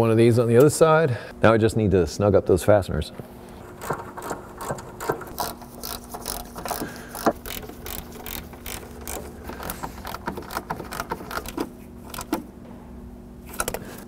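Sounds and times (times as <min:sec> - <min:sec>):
hand ratchet clicking: 0:03.8 - 0:12.4.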